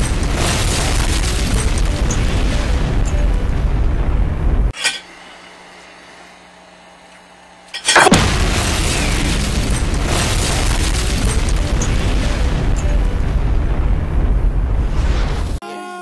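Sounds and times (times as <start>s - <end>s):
explosion boom and rumble: 0.0s - 4.8s, 8.1s - 15.6s.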